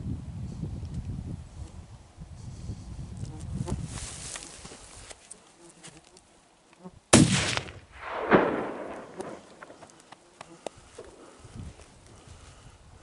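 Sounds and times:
rifle shot: 7.1 - 9.9
rumble of gunshot echo: 7.1 - 9.9.

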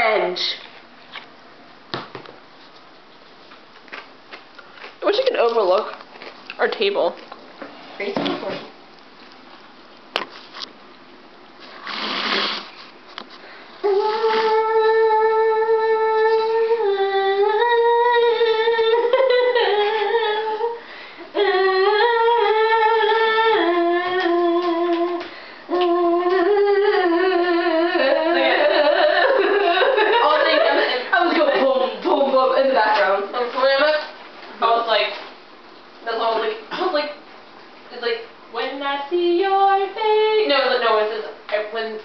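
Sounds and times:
girl humming: 13.8 - 30.3.

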